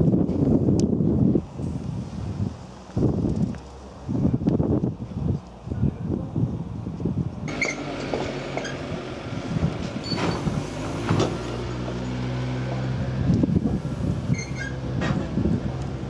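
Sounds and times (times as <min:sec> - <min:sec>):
engine running: 0:07.5 - 0:16.0.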